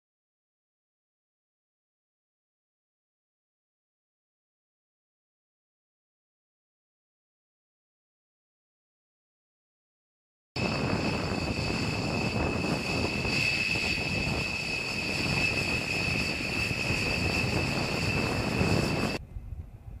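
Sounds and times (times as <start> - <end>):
jet engines whining and rumbling: 10.6 - 20.0.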